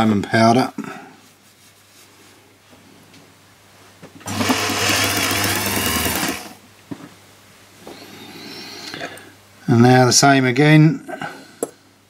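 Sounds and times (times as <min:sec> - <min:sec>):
small lathe motor running: 0:04.3 - 0:06.6.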